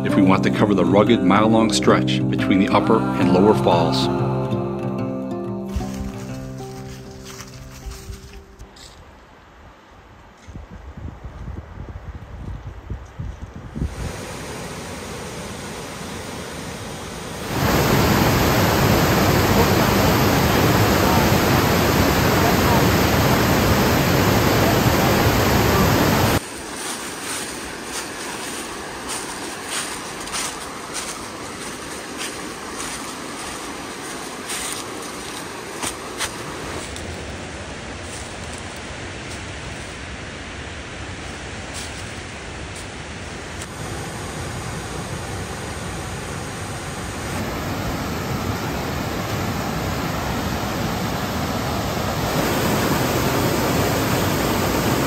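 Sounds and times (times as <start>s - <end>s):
waterfall rushing: 13.9s - 55.0s.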